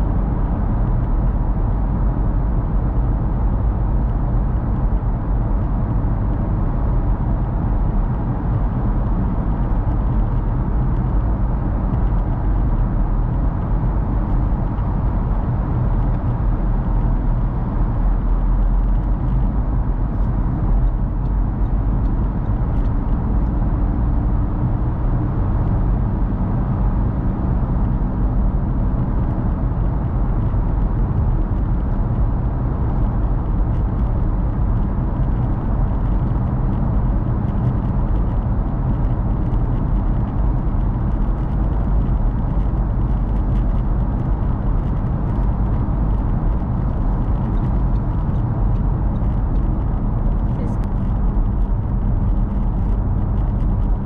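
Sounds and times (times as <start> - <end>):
low engine hum: 0.0 - 54.0
tyre road noise: 0.0 - 54.0.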